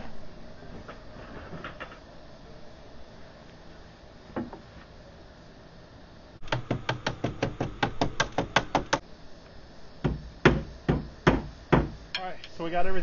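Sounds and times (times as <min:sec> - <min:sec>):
hammer knocking on wood: 0:10.0 - 0:12.0.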